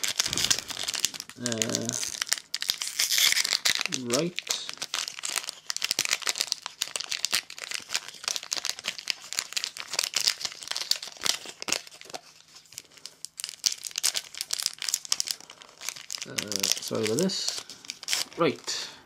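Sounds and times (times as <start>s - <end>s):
foil wrapper crinkling: 0.0s - 18.9s
foil wrapper tearing: 0.0s - 18.9s.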